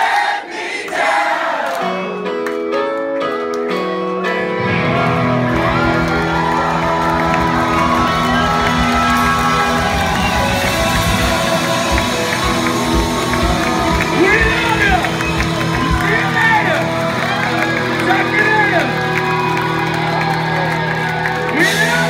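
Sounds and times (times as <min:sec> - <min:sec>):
rock band playing live: 0:01.8 - 0:22.0
crowd cheering: 0:04.4 - 0:22.0
drums: 0:04.6 - 0:22.0.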